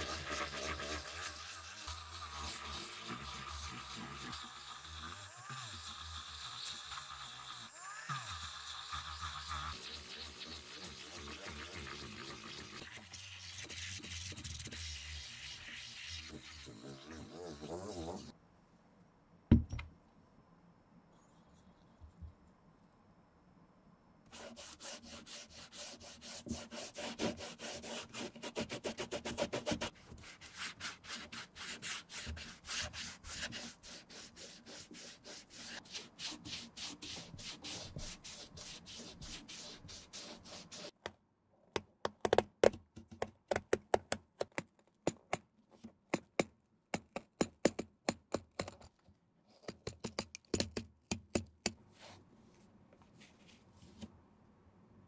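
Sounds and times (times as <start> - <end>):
cotton scrubbing rubber sole: 0.0 - 18.3, 24.3 - 41.0.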